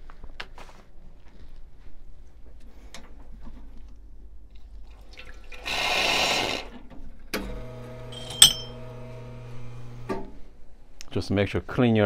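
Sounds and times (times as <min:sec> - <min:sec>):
water pouring: 0:04.9 - 0:05.7
ringing metallic clink: 0:08.2 - 0:08.8.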